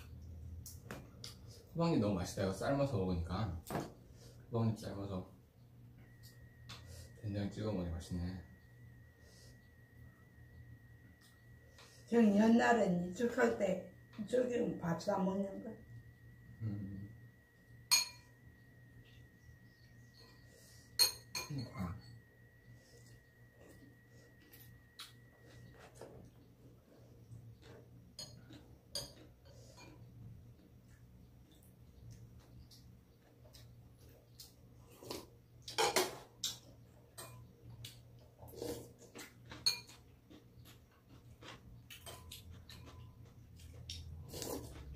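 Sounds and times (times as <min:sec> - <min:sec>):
metal spoon clinking bowl: 0:17.8 - 0:18.4, 0:20.2 - 0:22.3, 0:28.1 - 0:30.0, 0:39.6 - 0:40.0.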